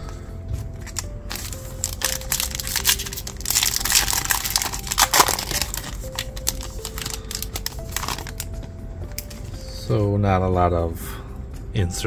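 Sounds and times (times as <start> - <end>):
quiet background music: 0.0 - 12.0
wrapper tearing and crinkling: 0.8 - 8.5.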